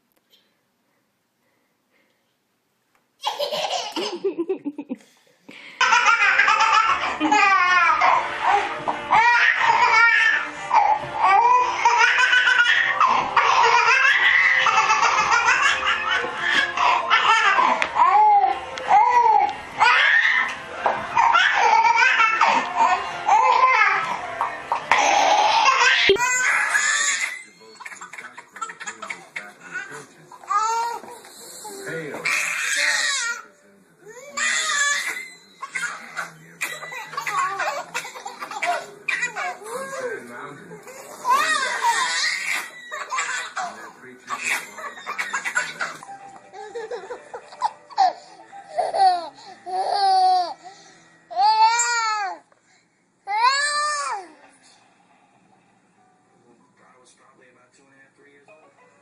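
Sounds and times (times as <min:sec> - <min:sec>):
baby laughing: 0:03.2 - 0:04.8, 0:05.8 - 0:20.5, 0:21.1 - 0:24.2, 0:24.8 - 0:33.4, 0:34.1 - 0:40.1, 0:40.9 - 0:50.6.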